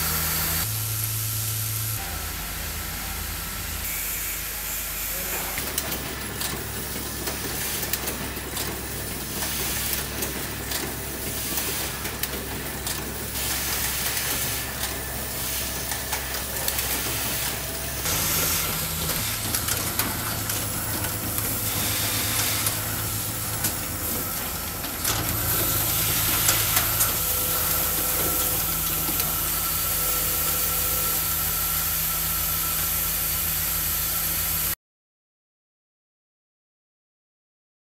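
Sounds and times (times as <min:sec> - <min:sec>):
machine hum: 0:00.0 - 0:34.7
pneumatic clicks: 0:05.6 - 0:30.9.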